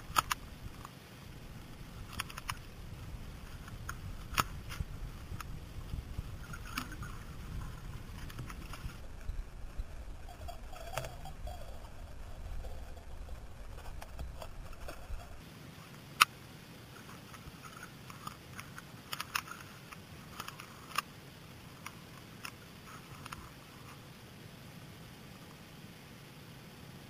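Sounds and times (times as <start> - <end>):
sharp underwater clicks: 0.0 - 1.0, 2.0 - 2.7, 3.5 - 5.6, 17.0 - 21.1
muffled underwater rumble: 0.0 - 15.4.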